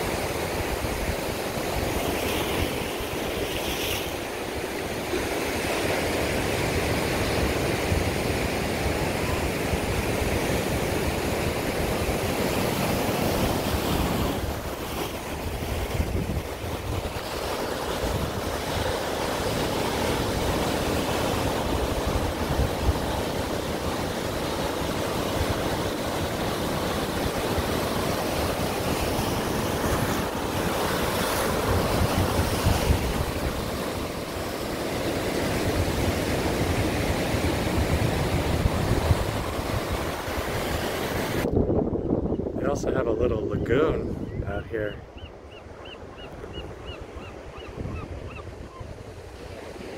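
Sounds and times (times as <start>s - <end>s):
ocean surf breaking: 0.0s - 49.9s
wind rumbling on microphone: 7.3s - 18.8s, 27.6s - 34.2s, 35.4s - 49.9s.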